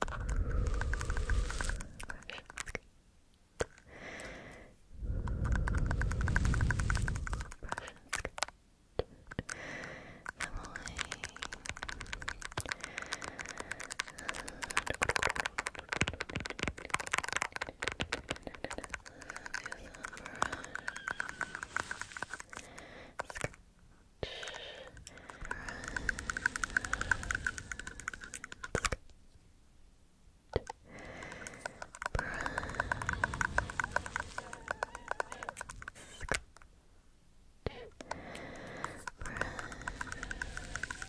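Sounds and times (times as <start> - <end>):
fingernail tapping and scratching: 0.0 - 2.8, 5.2 - 8.5, 10.2 - 23.6, 24.4 - 29.0, 30.6 - 36.4, 38.6 - 41.0.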